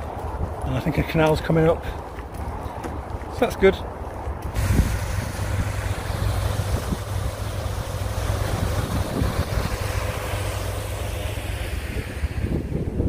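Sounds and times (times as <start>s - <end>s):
wind buffeting microphone: 0.0s - 13.0s
water gushing through lock gate: 4.5s - 13.0s.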